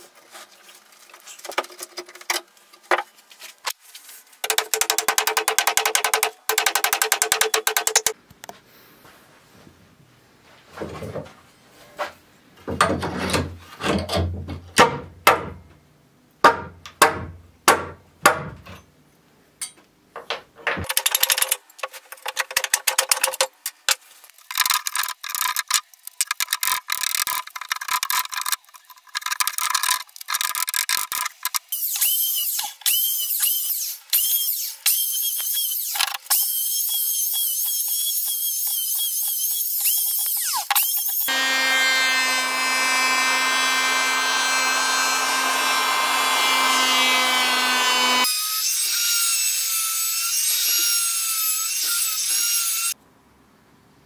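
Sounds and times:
electric hand planer running: 0:41.3 - 0:48.2.

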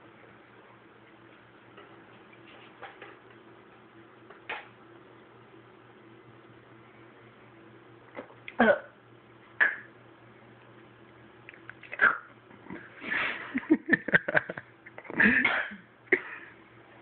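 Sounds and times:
woman coughing and gasping: 0:15.2 - 0:15.9.

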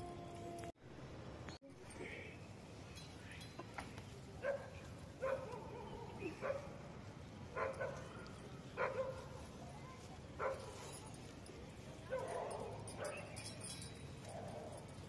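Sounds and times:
dog barking: 0:04.4 - 0:06.7, 0:07.6 - 0:08.0, 0:08.8 - 0:09.3, 0:12.1 - 0:13.2.

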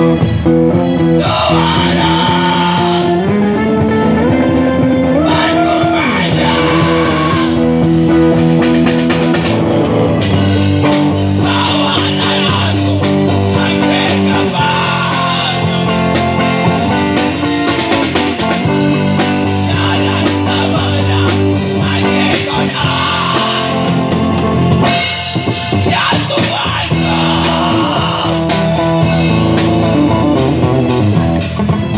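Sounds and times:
drum kit: 0:00.0 - 0:31.9
guitar: 0:00.0 - 0:31.9
man singing into a microphone: 0:01.1 - 0:03.3, 0:05.1 - 0:07.6, 0:11.4 - 0:16.2, 0:19.5 - 0:24.1, 0:25.7 - 0:30.2.

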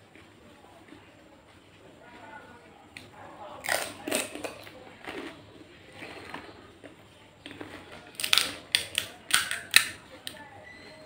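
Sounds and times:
crunchy food being chewed: 0:02.9 - 0:10.0.

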